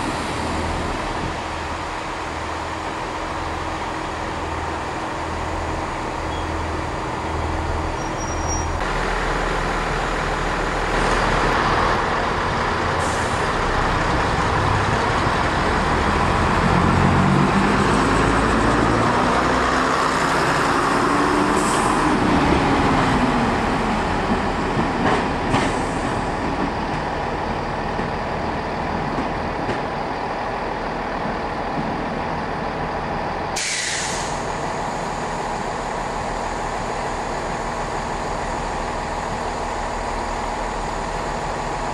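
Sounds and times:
diesel railcar engine throbbing: 0.0 - 41.9
loud hiss: 33.6 - 35.8.

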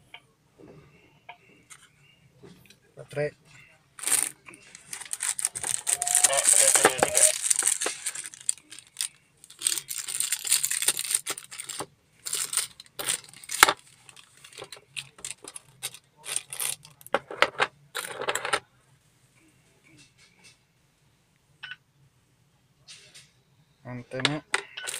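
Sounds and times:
plastic wrapping crinkling: 4.0 - 17.1.

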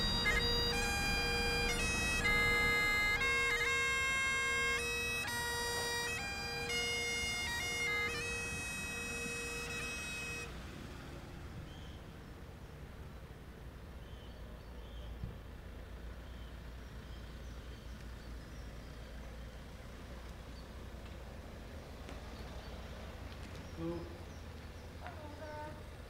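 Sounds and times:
bagpipes playing a tune: 0.0 - 11.0.

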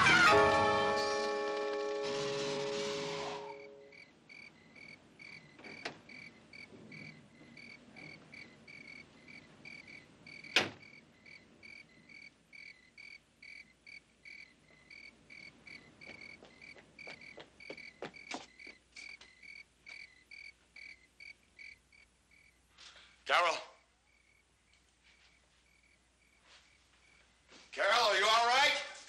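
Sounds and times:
held music chord: 0.0 - 3.9
crickets chirping: 2.1 - 29.0.

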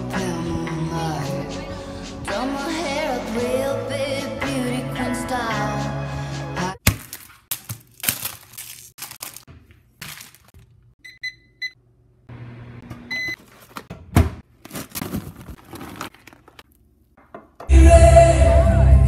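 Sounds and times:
microwave low hum: 10.6 - 16.8
microwave keypad beeping: 11.0 - 11.8, 13.1 - 13.4.

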